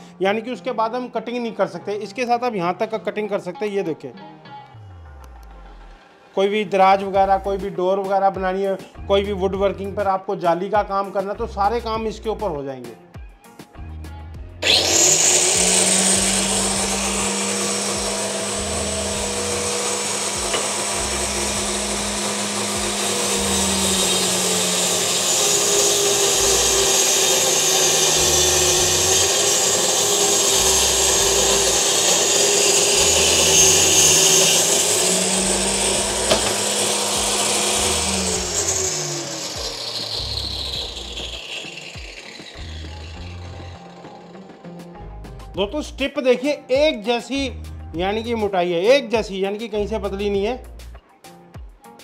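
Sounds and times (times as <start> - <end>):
circular saw motor whine: 14.6 - 45.0.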